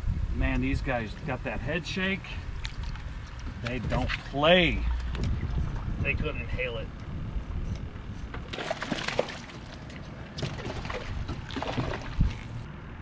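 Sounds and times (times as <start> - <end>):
water splashing around boat: 2.4 - 6.1, 8.2 - 12.7.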